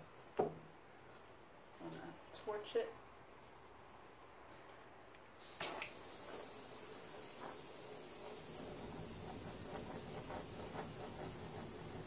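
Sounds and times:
handheld torch hissing: 5.4 - 12.0.

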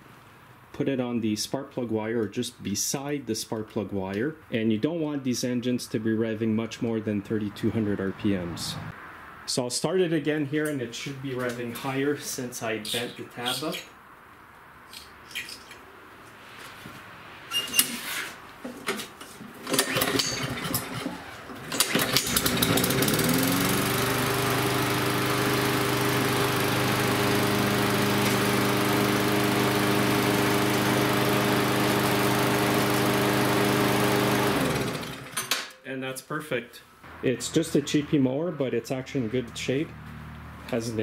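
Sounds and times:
lawn mower engine clattering: 18.8 - 35.7
lawn mower engine running: 19.6 - 35.6.

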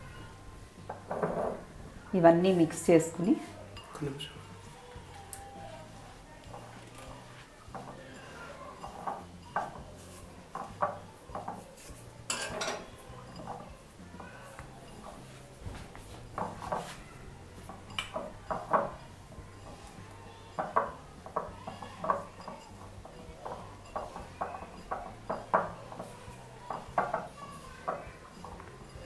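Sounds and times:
fingers clinking on glass bowl: 3.0 - 4.6, 7.7 - 15.4, 17.5 - 29.0.

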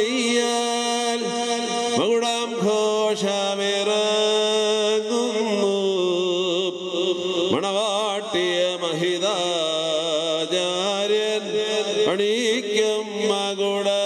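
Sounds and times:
man chanting a prayer: 0.0 - 14.0.

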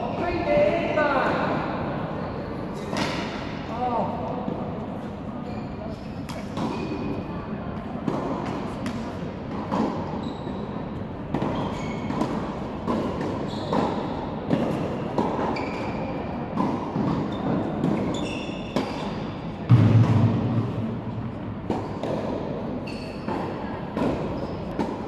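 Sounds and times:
shoe squeaks on court: 5.4 - 7.3, 10.0 - 10.9, 11.5 - 12.2, 13.4 - 14.2, 15.4 - 16.2, 17.2 - 19.4, 22.8 - 23.6
tennis balls struck and bouncing: 6.2 - 10.2, 10.9 - 25.0.

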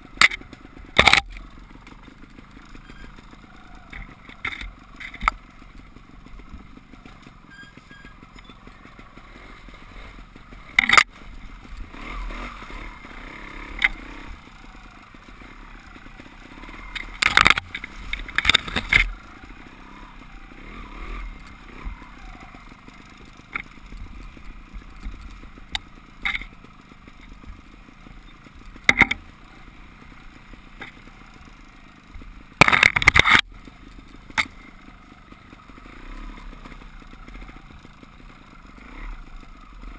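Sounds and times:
motorcycle engine running: 0.0 - 39.9
sharp clattering knocks: 28.8 - 29.3.

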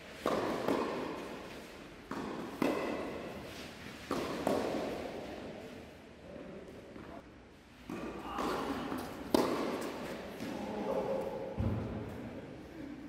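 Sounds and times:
tennis ball bouncing: 0.2 - 5.1, 7.9 - 10.5
racket hitting tennis ball: 0.2 - 5.4, 7.9 - 10.5.

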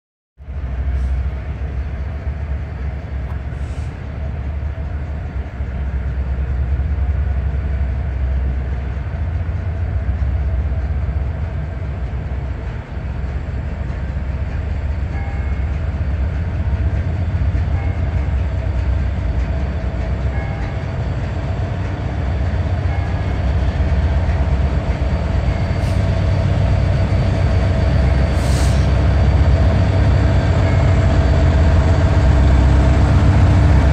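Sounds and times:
diesel locomotive engine rumble: 0.4 - 33.9.

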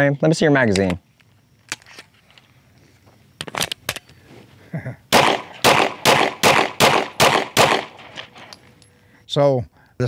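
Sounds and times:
rapid pistol shots: 5.1 - 8.5
pistol handling clicks: 5.2 - 8.9.

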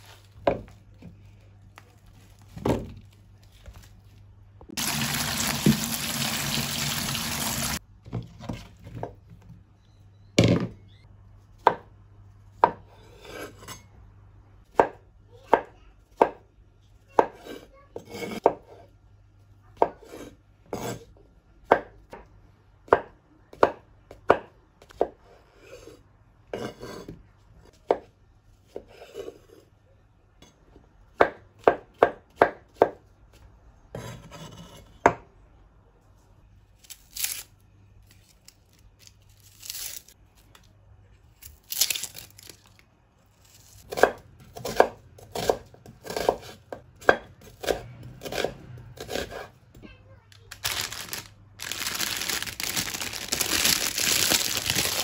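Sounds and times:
tap water running onto mushrooms: 4.8 - 7.8.

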